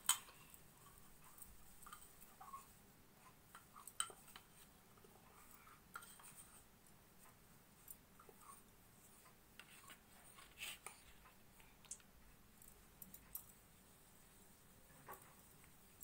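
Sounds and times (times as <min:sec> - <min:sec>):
hands rolling soft dough: 0:00.0 - 0:16.0
light clicks and taps: 0:09.2 - 0:13.6.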